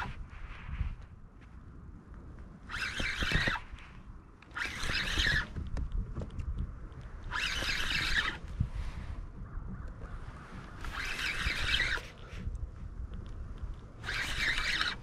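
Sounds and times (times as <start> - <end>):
fishing reel drag buzzing: 0.0 - 0.2, 2.6 - 5.6, 7.2 - 8.6, 10.7 - 12.4, 14.0 - 15.0.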